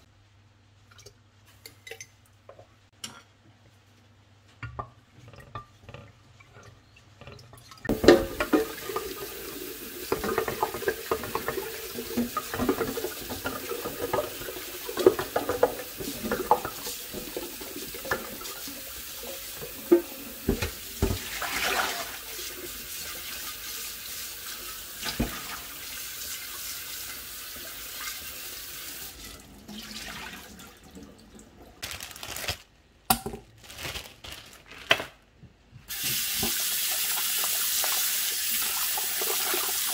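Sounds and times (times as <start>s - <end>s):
pot knocking against sink: 7.9s - 9.0s.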